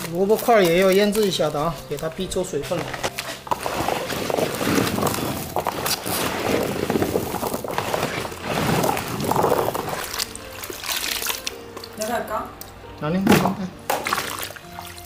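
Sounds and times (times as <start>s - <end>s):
radish cubes clattering in plastic basin: 2.7s - 11.5s.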